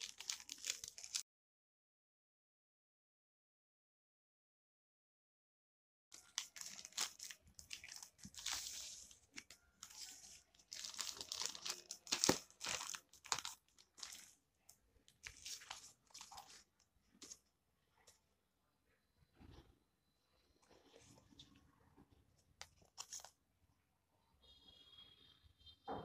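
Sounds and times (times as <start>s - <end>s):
plastic and foil crinkling: 0.0s - 1.2s, 6.2s - 14.4s, 15.1s - 17.4s, 22.6s - 23.3s.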